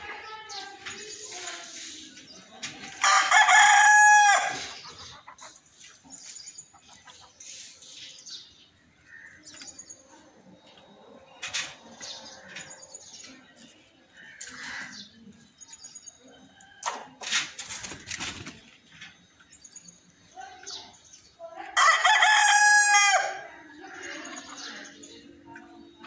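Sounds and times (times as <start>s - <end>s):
small birds chirping faintly: 0.0s - 26.0s
rooster crowing: 3.0s - 4.6s, 21.8s - 23.5s.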